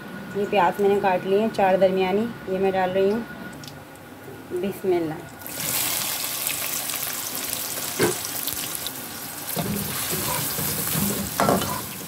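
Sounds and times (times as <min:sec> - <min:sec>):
onions sizzling in hot oil: 0:05.4 - 0:12.0.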